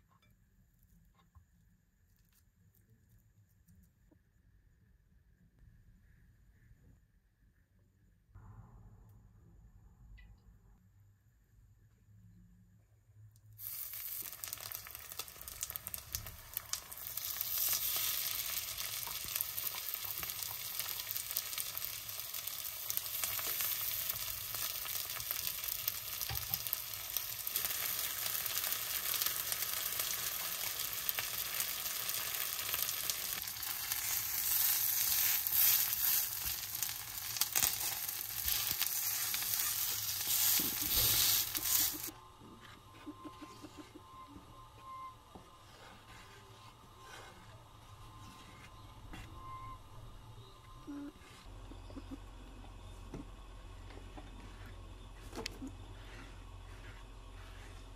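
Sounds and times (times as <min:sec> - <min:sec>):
patties sizzling in oil: 0:13.5 - 0:42.1.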